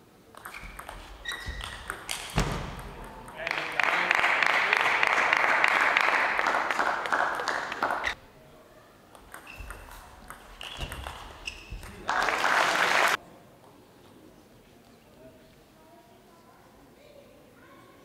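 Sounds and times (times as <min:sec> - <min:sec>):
short high squeaks: 0:00.4 - 0:02.4, 0:09.3 - 0:12.0
audience applause: 0:03.4 - 0:08.2, 0:12.0 - 0:13.2.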